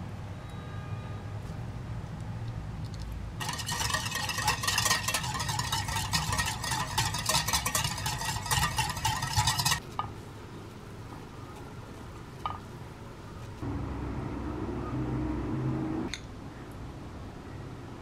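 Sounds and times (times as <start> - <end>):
whisk clattering against bowl: 3.4 - 9.8
low hum: 13.6 - 16.2.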